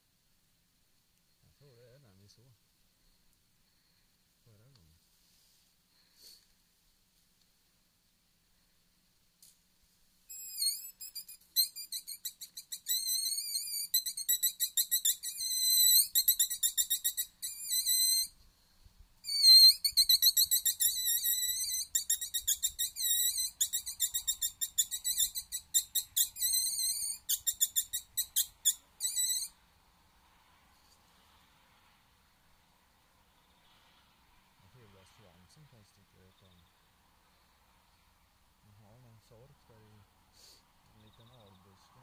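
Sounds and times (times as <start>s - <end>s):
predator call squealing squeaks: 10.3s - 18.4s, 19.2s - 29.6s.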